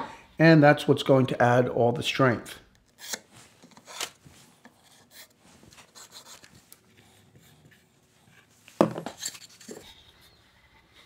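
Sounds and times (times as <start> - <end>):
pencil scratching on wood: 4.6 - 8.6.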